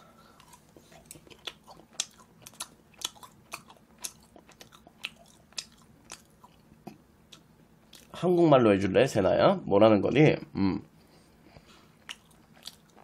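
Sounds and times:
wet chewing mouth clicks: 0:00.4 - 0:08.1, 0:12.0 - 0:13.0.

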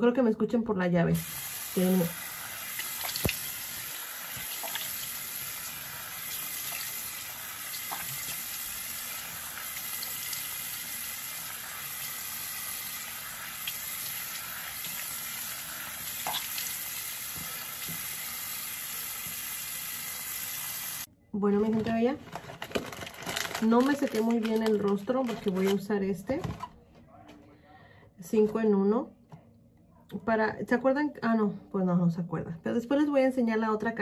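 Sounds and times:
water splashes: 0:01.2 - 0:10.5
faucet running into sink: 0:01.2 - 0:21.1.

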